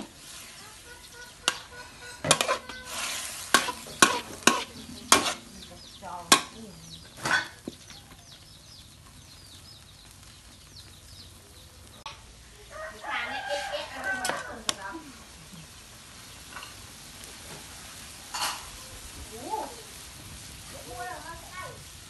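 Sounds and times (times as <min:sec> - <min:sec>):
spatula scraping in a wok: 0:00.0 - 0:07.8, 0:13.3 - 0:15.0, 0:16.1 - 0:18.8
light sizzle: 0:00.0 - 0:22.0.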